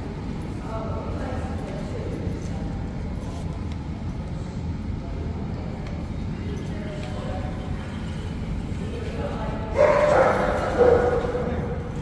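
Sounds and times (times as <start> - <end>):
faint murmuring voices: 0.0 - 12.0
low room rumble: 0.0 - 12.0.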